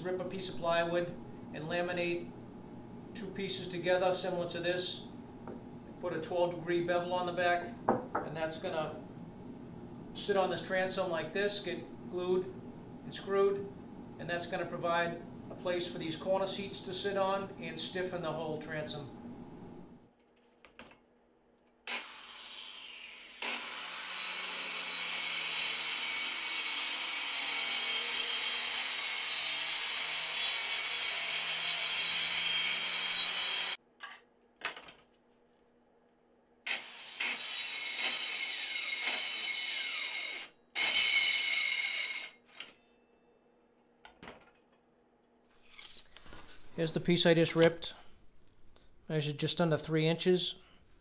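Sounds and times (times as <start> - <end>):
circular saw cutting plywood: 21.9 - 33.8, 36.7 - 42.4.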